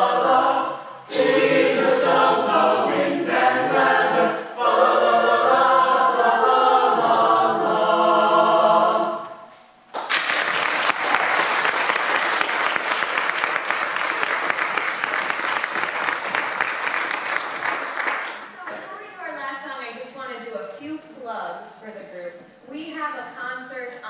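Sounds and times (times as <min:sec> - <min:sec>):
choir singing unaccompanied: 0:00.0 - 0:09.5
audience applause: 0:09.9 - 0:18.5.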